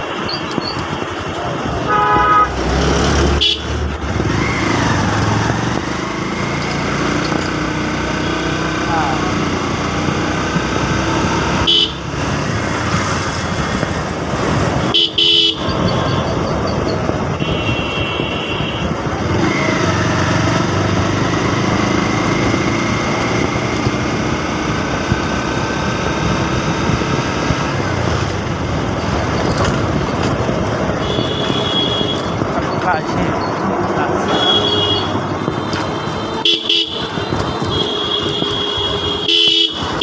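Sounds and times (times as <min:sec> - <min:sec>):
motorcycle engine running: 0:00.1 - 0:40.0
vehicle horns tooting: 0:00.2 - 0:05.1, 0:11.5 - 0:12.2, 0:14.8 - 0:16.4, 0:17.2 - 0:19.6, 0:30.9 - 0:33.2, 0:33.9 - 0:40.0
wind noise: 0:10.2 - 0:40.0.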